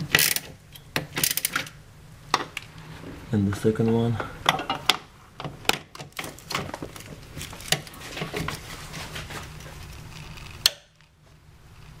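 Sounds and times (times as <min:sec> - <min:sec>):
ratchet clicking on metal: 0:00.1 - 0:01.7.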